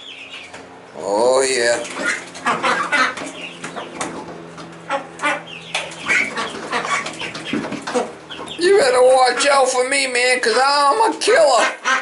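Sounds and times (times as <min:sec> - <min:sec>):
ducks calling: 0:00.0 - 0:12.0
wings flapping: 0:01.7 - 0:08.6.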